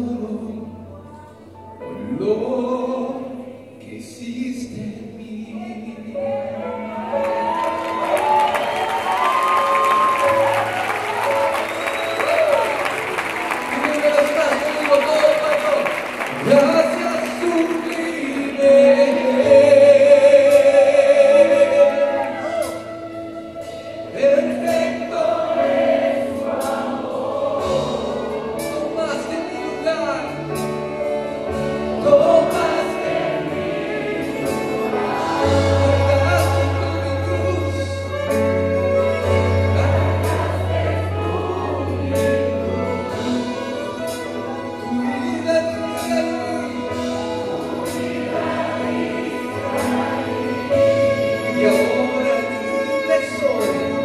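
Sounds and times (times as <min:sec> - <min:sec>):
choir singing worship song: 0:06.2 - 0:54.0.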